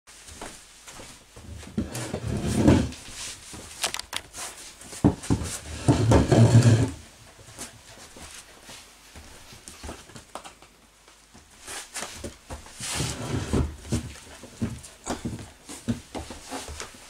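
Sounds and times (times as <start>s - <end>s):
chair legs scraping on boards: 1.6s - 4.5s, 5.1s - 7.0s, 12.8s - 14.1s.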